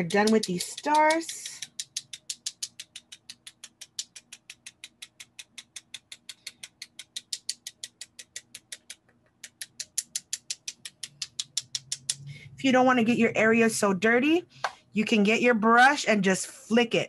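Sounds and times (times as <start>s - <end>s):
paintbrush tapping clicks: 0.0s - 12.3s.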